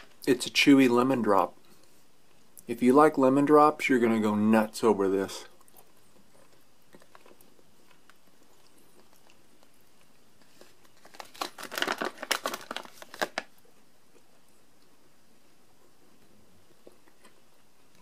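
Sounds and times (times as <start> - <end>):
plastic bag crinkling: 10.4 - 13.6.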